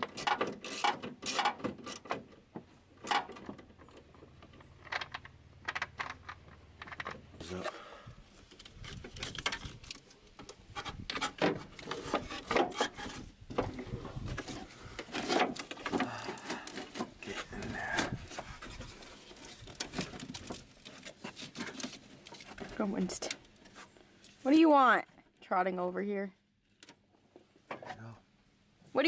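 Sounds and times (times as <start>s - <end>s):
plastic parts rubbing: 8.4s - 24.0s.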